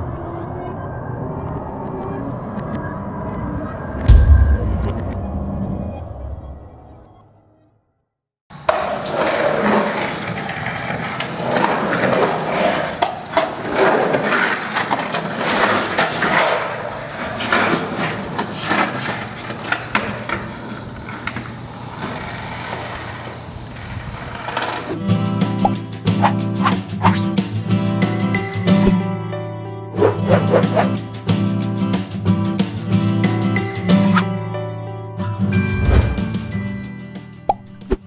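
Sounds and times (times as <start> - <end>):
music: 0.0 - 23.4, 24.9 - 38.0
skateboard wheels rolling on concrete: 8.5 - 29.0, 30.0 - 34.4
skateboard clacks and knocks: 8.6 - 25.0.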